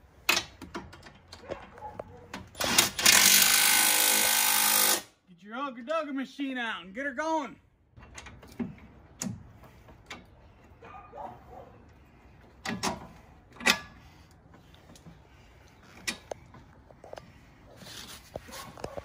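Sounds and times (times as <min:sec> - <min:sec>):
tools clicking and knocking: 0:00.2 - 0:05.0, 0:08.0 - 0:10.4, 0:12.4 - 0:17.3.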